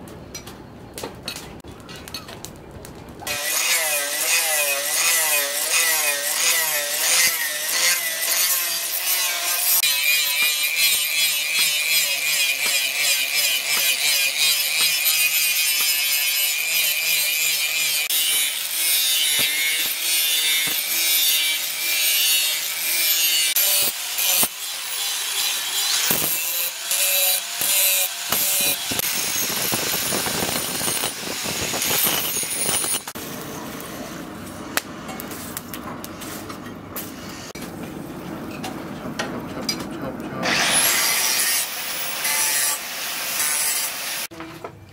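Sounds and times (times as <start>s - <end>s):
angle grinder grinding steel: 3.3s - 33.2s, 40.4s - 44.3s.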